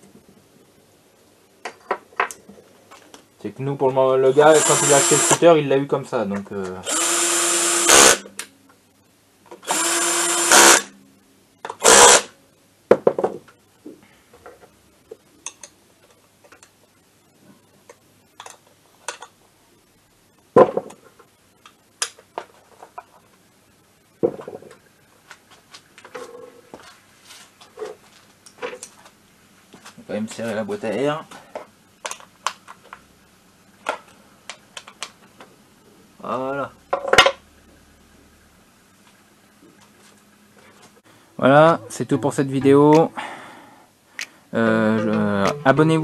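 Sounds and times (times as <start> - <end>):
drill-driver running: 4.4 - 5.4, 6.8 - 8.2, 9.6 - 10.9, 11.8 - 12.3.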